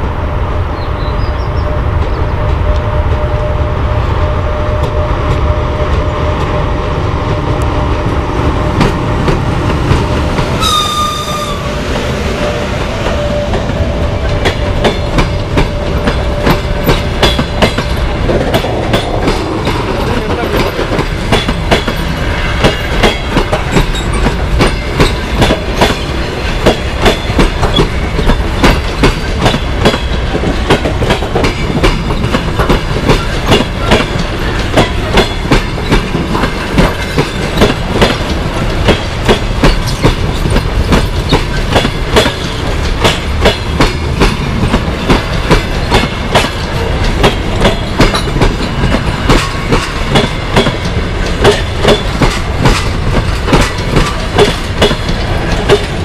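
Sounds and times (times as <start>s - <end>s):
electric locomotive rumble and whine: 0.0s - 56.0s
train wheels clicking over rail joints: 4.7s - 11.2s, 11.8s - 56.0s
high-pitched whistle: 10.6s - 11.7s.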